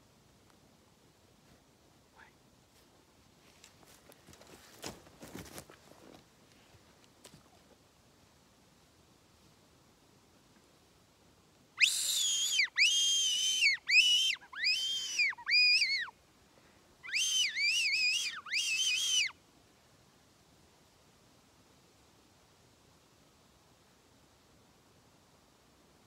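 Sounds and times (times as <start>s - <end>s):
person whistling shrilly: 11.8s - 16.1s, 17.0s - 19.3s.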